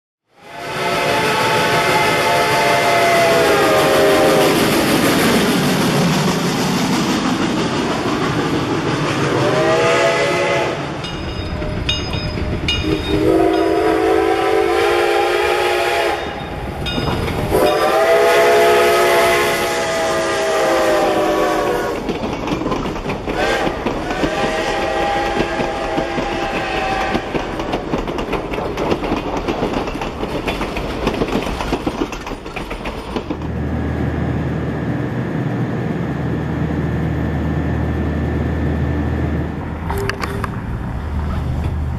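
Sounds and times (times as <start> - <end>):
steam locomotive chime whistle: 0.4 - 4.6, 9.3 - 22.0, 23.4 - 27.6
train wheels rumbling on rails: 0.4 - 41.9.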